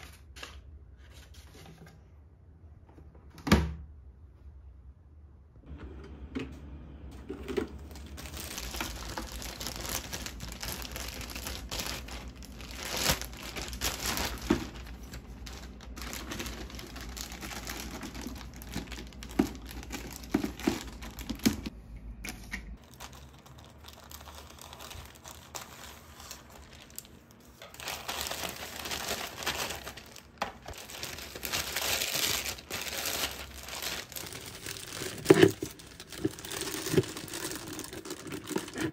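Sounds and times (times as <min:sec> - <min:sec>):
plastic bags crinkling: 0:07.5 - 0:21.7, 0:22.8 - 0:38.9.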